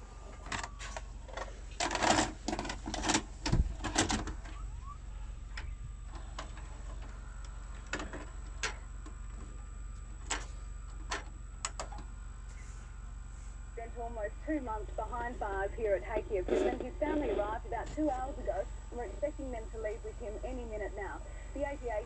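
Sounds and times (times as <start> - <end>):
video recorder loading cassette: 16.4 - 17.4.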